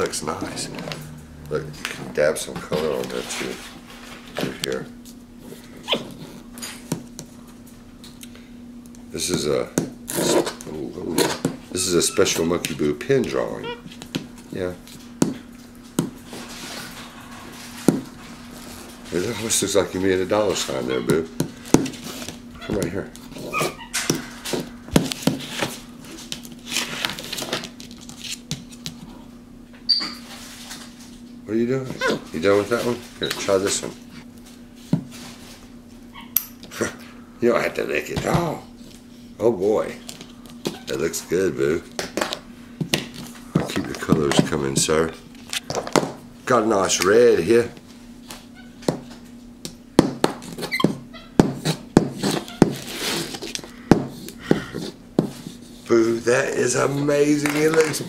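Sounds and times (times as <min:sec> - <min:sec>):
marker scribbling: 0:51.6 - 0:53.4.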